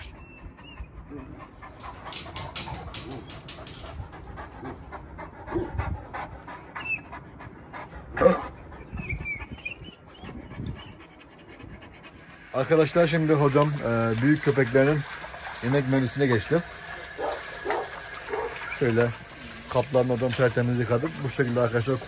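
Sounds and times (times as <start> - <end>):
dog vocal sound: 0.0 - 13.8, 17.0 - 19.6
dogs panting: 0.0 - 22.0.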